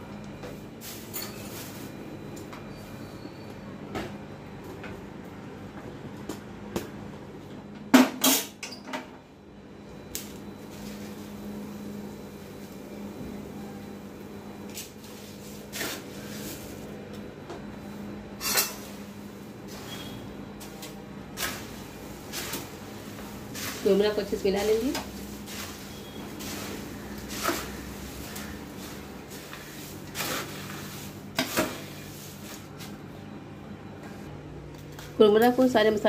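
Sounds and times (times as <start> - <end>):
steel kitchenware clanking: 18.4 - 18.9.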